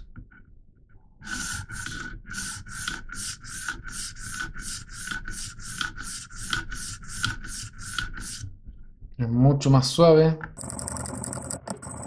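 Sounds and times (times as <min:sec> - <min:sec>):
sharpening stone scraping blade: 0:02.5 - 0:08.4.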